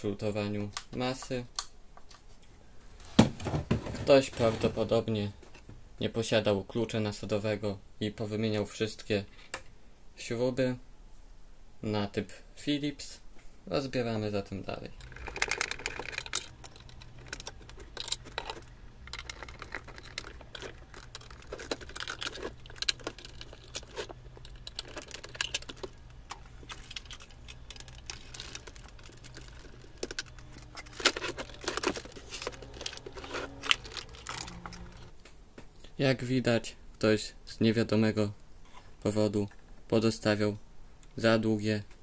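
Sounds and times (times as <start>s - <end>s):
radio cabinet being taken apart: 15.0s - 35.1s.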